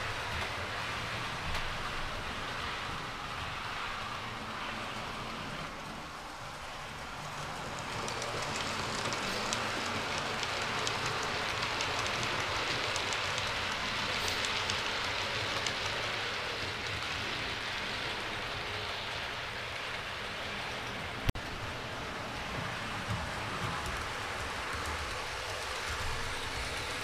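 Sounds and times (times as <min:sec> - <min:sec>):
model trains running: 0:00.0 - 0:27.0
wheels clicking over rail joints: 0:06.0 - 0:27.0.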